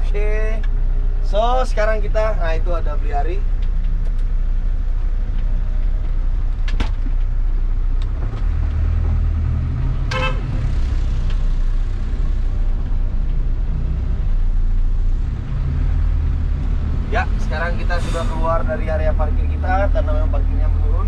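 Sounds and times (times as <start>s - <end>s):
bus engine rumbling: 0.0s - 21.0s
brief horn toot: 10.1s - 10.5s.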